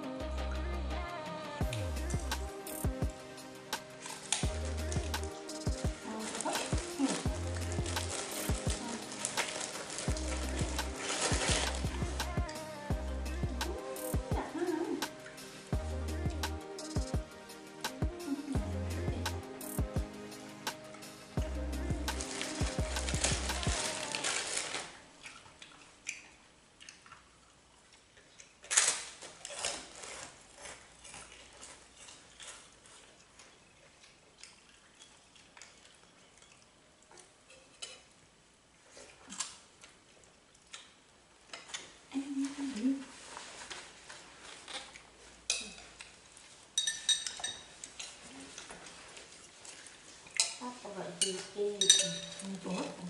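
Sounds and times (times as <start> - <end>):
spoons clinking on plates: 37.5 - 38.1, 46.8 - 48.7, 51.2 - 52.9.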